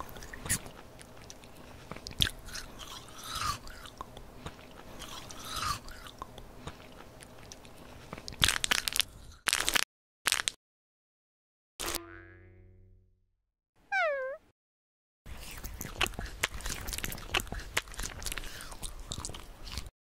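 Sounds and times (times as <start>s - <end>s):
chewing and crunching: 0.0s - 9.8s, 15.3s - 19.9s
wrapper crinkling torn open: 8.4s - 10.6s.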